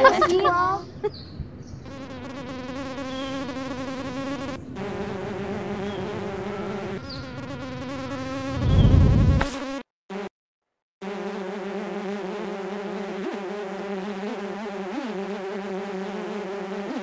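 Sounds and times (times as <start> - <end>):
buzzing mosquito voices: 1.9 - 10.3, 11.0 - 17.0
loud low thump: 8.6 - 9.5.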